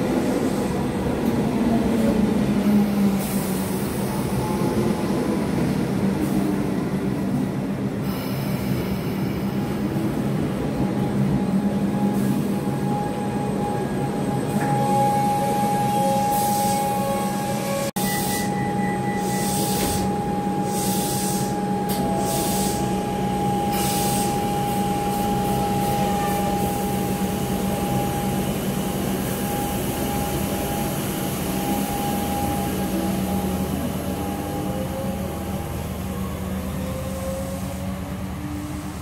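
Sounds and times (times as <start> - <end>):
electric train humming: 0.0 - 39.0
air hiss of doors closing: 19.3 - 23.0, 23.7 - 24.4.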